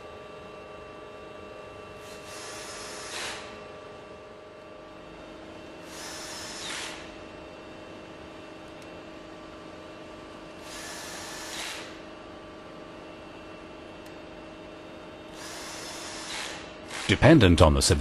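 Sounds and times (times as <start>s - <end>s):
cordless drill driving screws: 5.9s - 7.0s, 10.7s - 11.9s, 15.4s - 17.1s.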